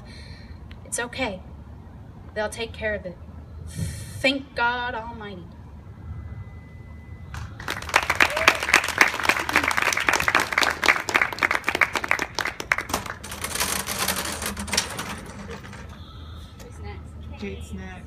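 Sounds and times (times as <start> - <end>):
small audience clapping: 7.3 - 13.3.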